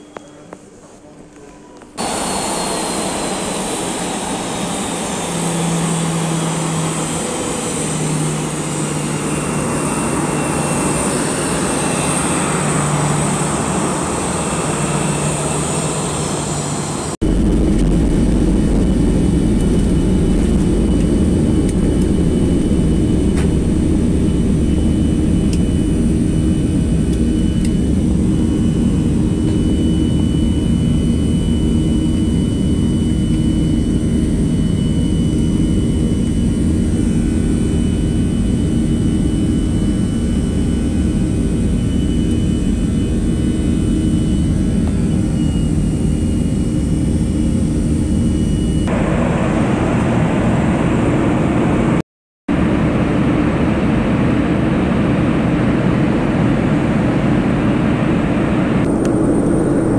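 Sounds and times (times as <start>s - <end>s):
jet engine whine: 0.0s - 59.9s
jet engines rumbling at takeoff: 1.3s - 59.9s.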